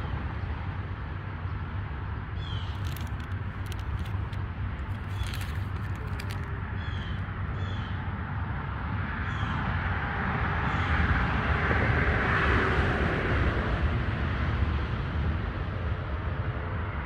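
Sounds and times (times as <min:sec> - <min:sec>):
steady low rumble: 0:02.5 - 0:07.6.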